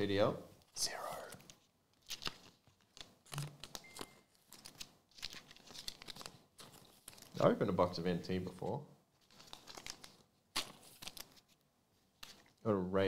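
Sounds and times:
cards and wrappers crinkling: 0:00.8 - 0:07.5, 0:09.2 - 0:12.6.

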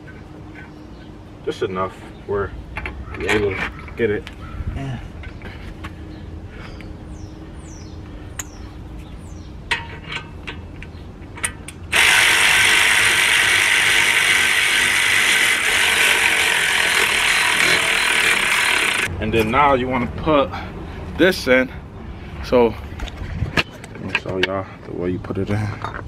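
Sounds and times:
cordless ratchet wrench running: 0:11.9 - 0:19.1.

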